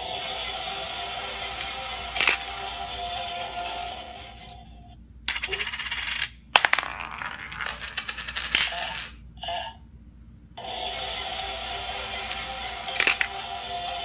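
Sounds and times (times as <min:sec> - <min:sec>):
toy mechanism running: 0:00.0 - 0:04.6, 0:05.3 - 0:06.4, 0:10.8 - 0:14.0
metallic coin clicks: 0:05.3 - 0:09.1, 0:12.3 - 0:13.3.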